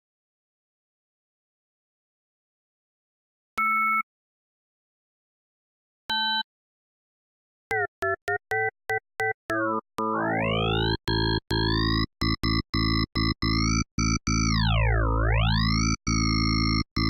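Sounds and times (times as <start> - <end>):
synthesizer gated lead: 9.5 - 17.0.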